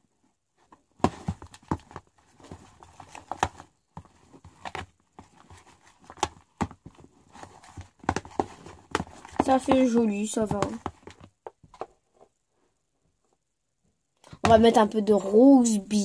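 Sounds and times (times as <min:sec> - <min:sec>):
utensil and bottles knocking on plastic tub: 0:07.7 - 0:11.9.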